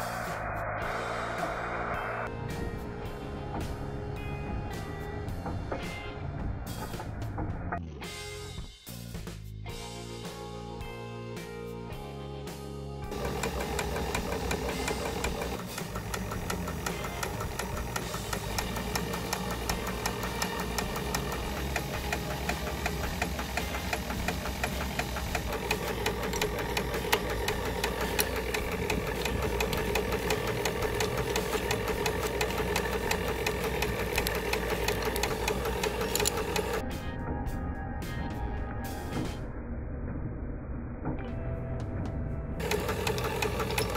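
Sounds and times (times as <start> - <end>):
small steam engine beating rapidly: 13.1 - 36.8, 42.6 - 43.9.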